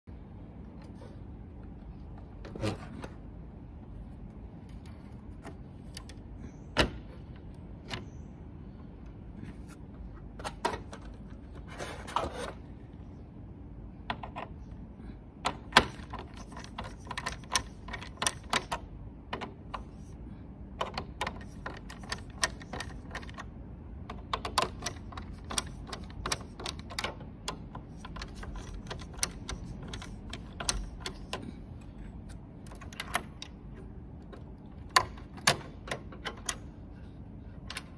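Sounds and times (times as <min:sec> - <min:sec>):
steady low hum: 0:00.0 - 0:37.9
wires being handled: 0:15.5 - 0:20.2, 0:20.8 - 0:37.9
screwdriver clicking on metal: 0:24.2 - 0:31.4.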